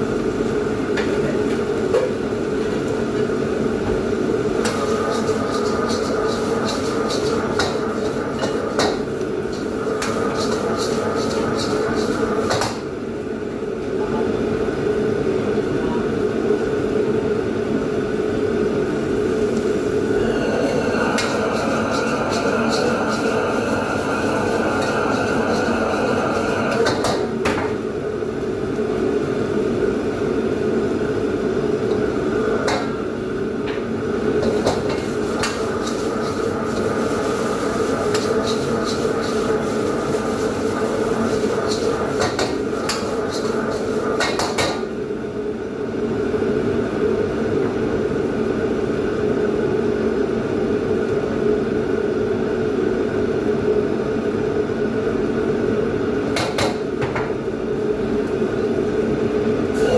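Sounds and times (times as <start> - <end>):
gas burner and hood rushing: 0.5 - 13.0, 18.8 - 28.4, 31.0 - 45.3
metal utensils clanking on a wok: 4.8 - 12.2.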